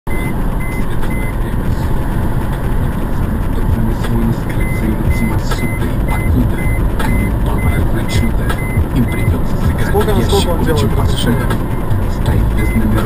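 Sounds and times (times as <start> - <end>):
short high beep: 0.1 - 1.4, 4.6 - 9.4
car interior road and engine rumble: 0.1 - 13.0.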